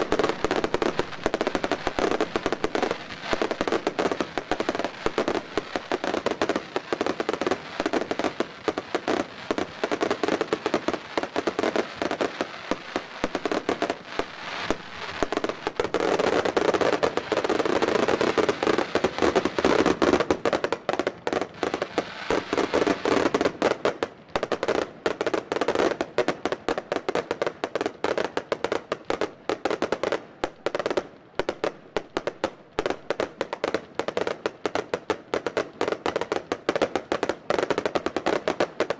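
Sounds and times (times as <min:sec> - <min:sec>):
fireworks barrage bangs and cracks: 0:00.0 - 0:38.9.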